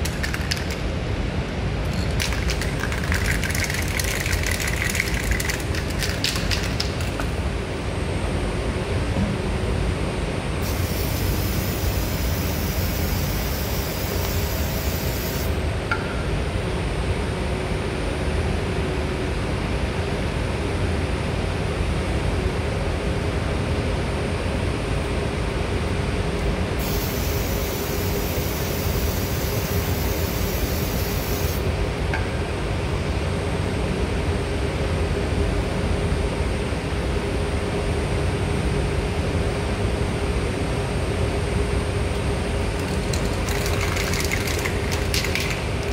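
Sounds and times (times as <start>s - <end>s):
constant hum: 0.0s - 45.9s
hiss: 10.6s - 15.6s, 26.8s - 31.6s
machinery drone: 10.6s - 15.8s, 26.8s - 31.9s.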